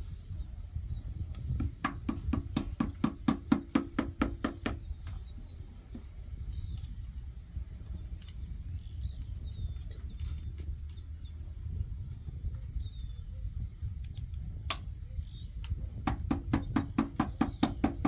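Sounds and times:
low rumble: 0:04.9 - 0:16.2.

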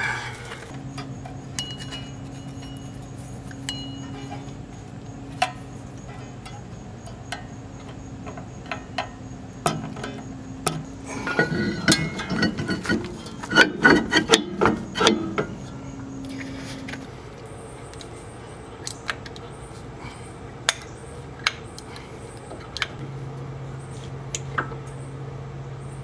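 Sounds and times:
metal clanking and scraping: 0:00.0 - 0:17.1.

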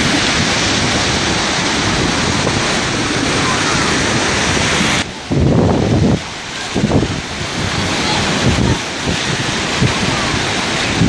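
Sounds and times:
surf breaking on a beach: 0:00.0 - 0:11.0
wind buffeting the microphone: 0:00.0 - 0:11.0.

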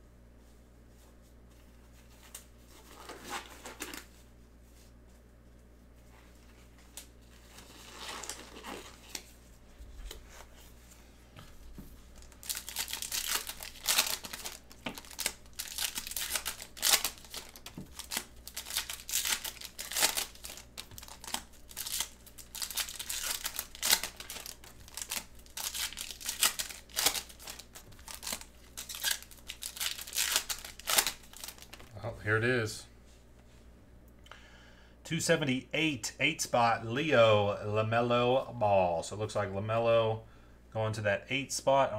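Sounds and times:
cards being handled: 0:06.1 - 0:31.9
foil wrappers crinkling and tearing: 0:06.4 - 0:09.4, 0:12.1 - 0:32.0.

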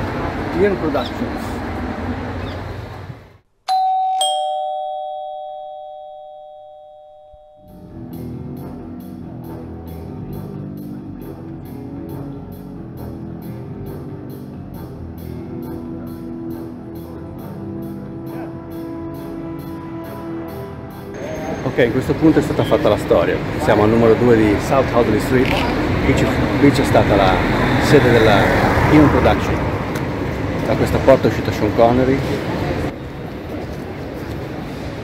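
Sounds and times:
two-note doorbell chime: 0:03.7 - 0:08.0.

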